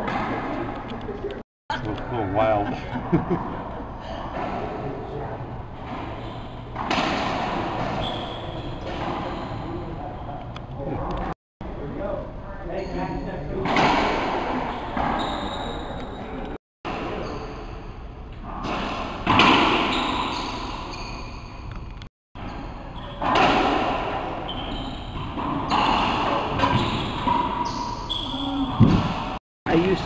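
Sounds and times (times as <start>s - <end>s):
ball smacking racquets and walls: 5.8s - 9.4s, 18.6s - 21.0s
sneaker squeaks on wooden floor: 7.8s - 9.8s, 14.7s - 16.2s, 19.6s - 21.7s, 24.4s - 29.4s.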